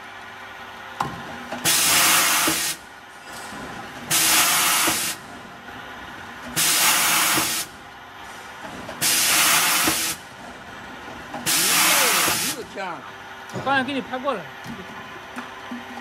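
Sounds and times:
steady machine noise: 0.0s - 16.0s
air hiss bursts: 1.6s - 2.8s, 4.1s - 5.2s, 6.6s - 7.7s, 9.0s - 10.2s, 11.4s - 12.6s.

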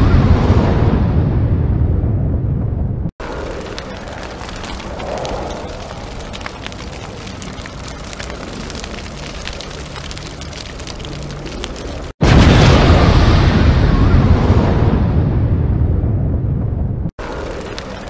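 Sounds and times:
low rumbling noise: 0.0s - 18.0s
small crackles and pops: 3.2s - 12.2s, 17.2s - 18.0s.

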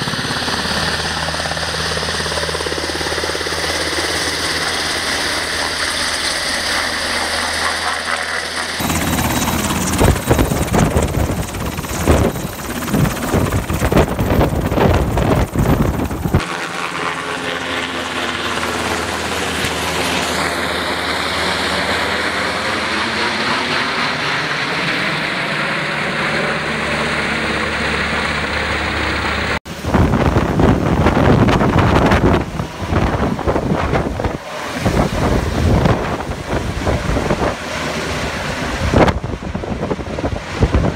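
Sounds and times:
helicopter rotor and turbine: 0.0s - 40.9s
wind buffeting microphone: 8.8s - 16.4s, 29.7s - 40.9s.

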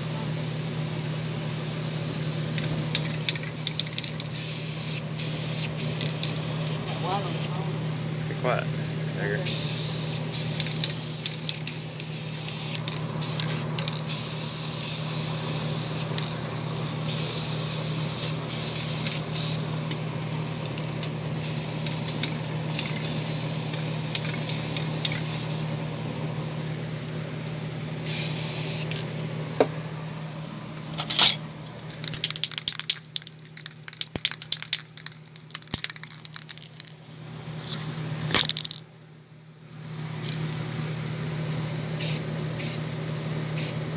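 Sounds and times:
paint sprayer hissing: 0.1s - 7.5s, 9.5s - 16.3s, 17.1s - 19.6s, 21.4s - 25.7s, 28.0s - 29.0s, 32.0s - 36.9s, 42.0s - 42.8s, 43.6s - 43.8s.

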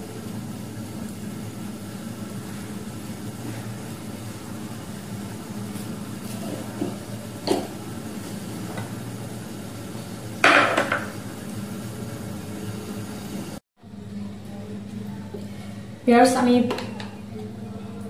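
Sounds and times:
pan simmering on gas burner: 0.0s - 13.6s
kitchen pots clattering: 10.4s - 11.1s.

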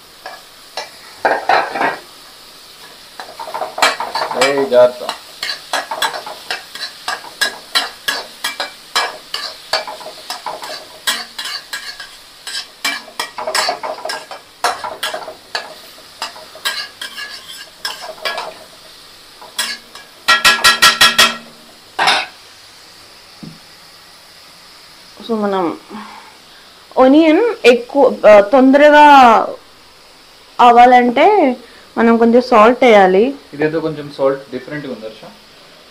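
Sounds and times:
oil sizzling: 0.0s - 35.9s
metal spatula scraping pan: 3.2s - 18.7s, 19.5s - 21.4s
metallic taps on pan: 19.4s - 22.3s.

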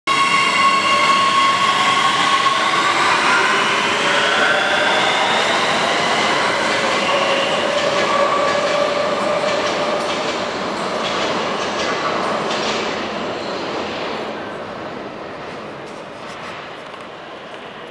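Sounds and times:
train rumble: 0.1s - 13.1s.

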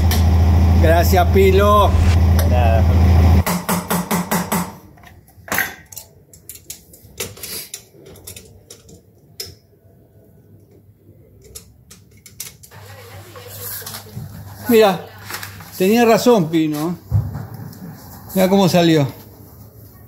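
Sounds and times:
low hum: 0.0s - 3.4s.

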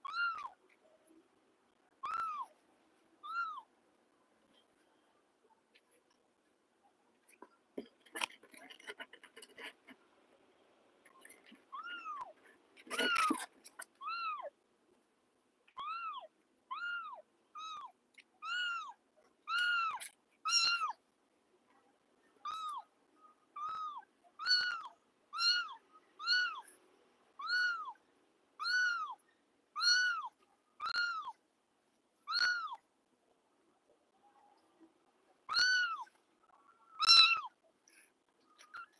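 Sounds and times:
kittens meowing: 2.0s - 2.6s, 15.8s - 21.0s, 23.6s - 26.7s, 27.4s - 28.0s, 28.6s - 29.2s, 29.8s - 31.4s, 32.3s - 32.8s, 35.5s - 36.1s, 36.9s - 37.6s.

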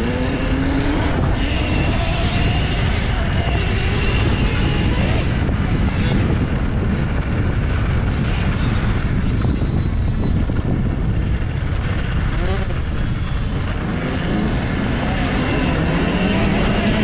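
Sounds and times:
wind rush on microphone: 0.0s - 17.0s.

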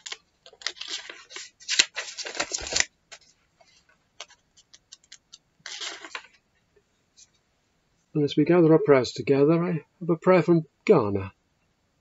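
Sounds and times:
paper rustling: 0.0s - 6.4s.

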